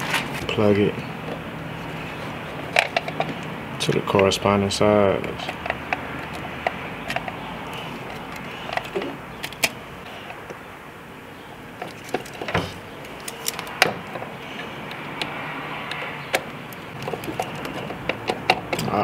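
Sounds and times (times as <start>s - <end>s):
pliers and connectors clicking: 5.4s - 10.6s, 14.8s - 19.0s.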